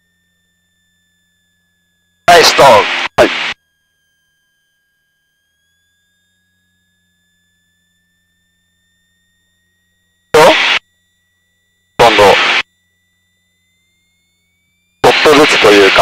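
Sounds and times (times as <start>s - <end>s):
electrical whine: 0.0s - 16.0s
low hum: 2.0s - 3.6s, 7.4s - 16.0s.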